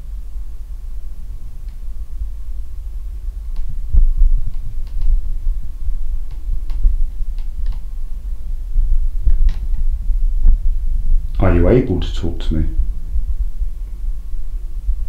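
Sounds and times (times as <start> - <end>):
microphone handling thuds: 3.6 - 11.8
faint clicks: 4.5 - 5.2, 6.2 - 7.9.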